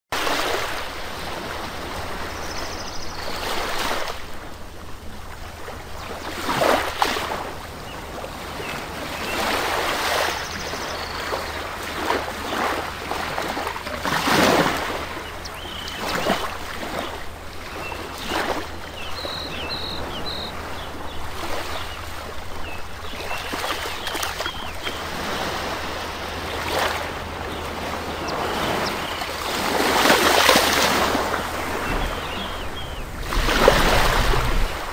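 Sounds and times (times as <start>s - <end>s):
aquarium water rushing: 11.4s - 34.9s
faint high chirps: 19.0s - 20.6s.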